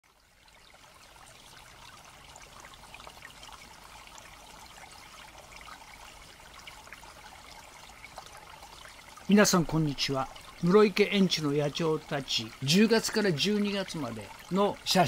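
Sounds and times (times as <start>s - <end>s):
faint trickling water: 0.0s - 15.0s.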